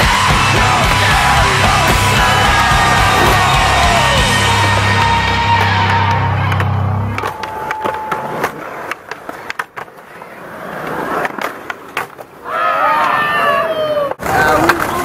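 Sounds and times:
music: 0.0 - 7.2
skateboard wheels rolling on concrete: 0.0 - 15.0
skateboard clacks: 5.0 - 12.4, 14.1 - 15.0.

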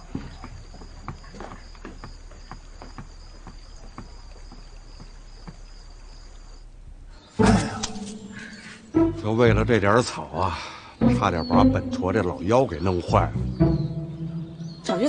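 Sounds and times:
soft footsteps: 0.0 - 6.8
night insects chirring: 0.0 - 15.0.

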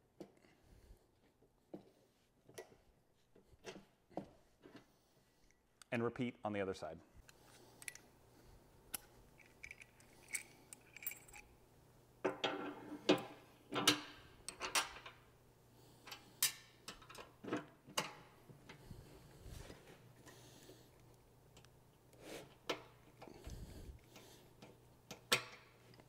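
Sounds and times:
metal washers clinking: 8.9 - 11.6.

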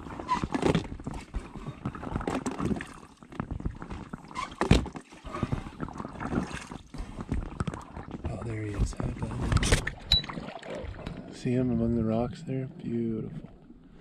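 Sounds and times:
paddle splashing in water: 0.0 - 8.3.

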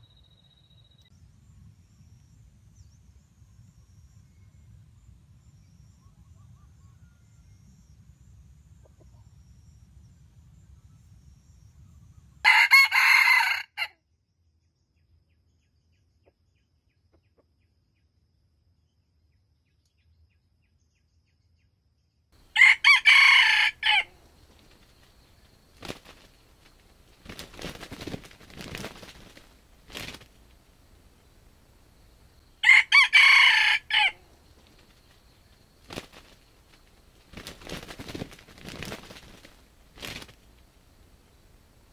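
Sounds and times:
rooster crowing: 12.4 - 13.9, 22.4 - 24.2, 32.6 - 34.3
faint rustling: 24.2 - 32.5, 34.3 - 41.9.

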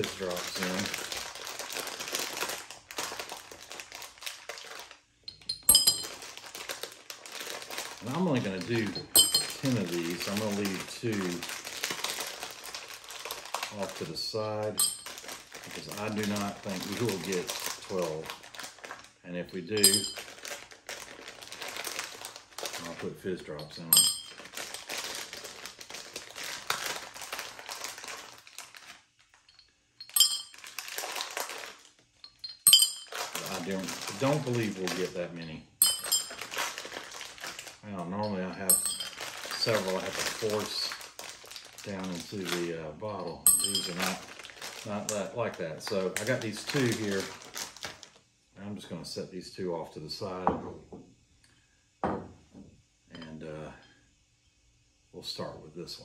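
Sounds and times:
packet crinkling and rustling: 0.0 - 5.2, 6.0 - 29.5, 30.1 - 35.4, 36.1 - 48.2
drop clinking in glass bottle: 5.3 - 6.2, 9.0 - 9.6, 14.8 - 15.1, 19.8 - 20.2, 23.6 - 24.4, 29.5 - 30.6, 32.3 - 33.2, 35.8 - 36.4, 38.2 - 39.2, 43.4 - 44.0.

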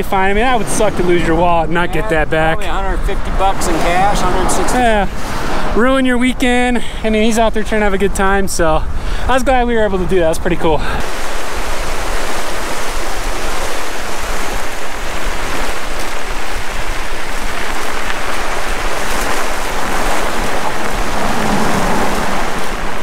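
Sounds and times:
bike tyres rolling on gravel: 0.0 - 5.7, 9.8 - 23.0
wind buffeting microphone: 11.1 - 23.0.

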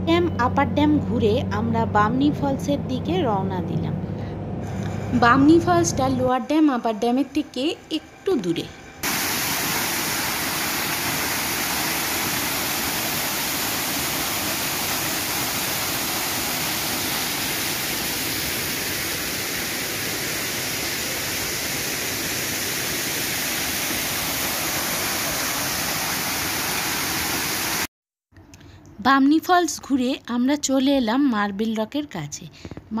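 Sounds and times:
waterfall rushing over rocks: 9.0 - 27.9.

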